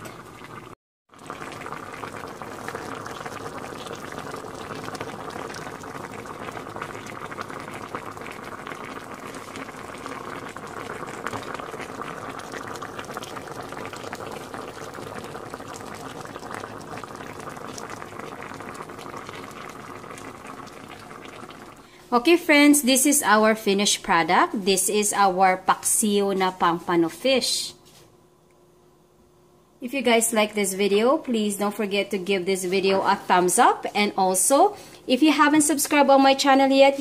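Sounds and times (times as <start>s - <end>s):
pot simmering with bubbling pops: 0.0s - 22.3s.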